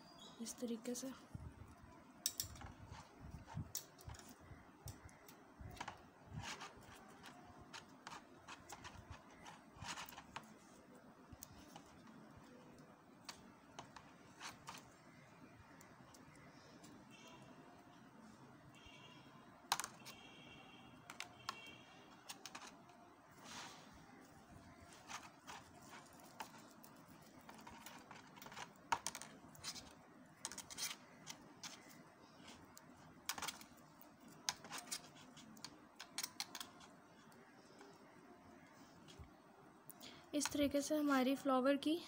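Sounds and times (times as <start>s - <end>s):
tape crackling on wire: 1.6s - 18.1s, 21.0s - 38.0s.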